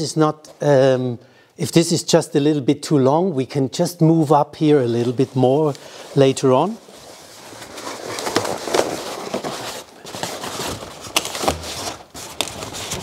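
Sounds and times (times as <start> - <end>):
balloons rubbing and crackling: 4.8 - 13.0.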